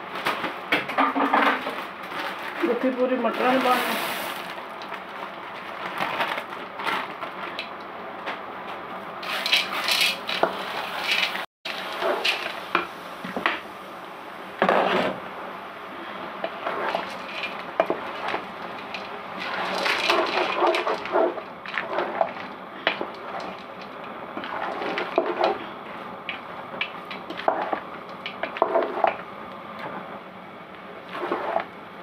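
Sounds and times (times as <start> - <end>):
spoon scraping a cooking pot: 16.4 - 23.7, 24.4 - 25.6, 27.2 - 29.2.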